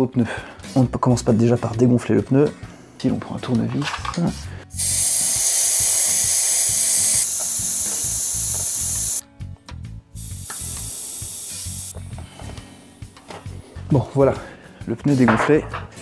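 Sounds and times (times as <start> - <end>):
air hissing from tyre valve: 4.7 - 9.2, 10.1 - 13.6.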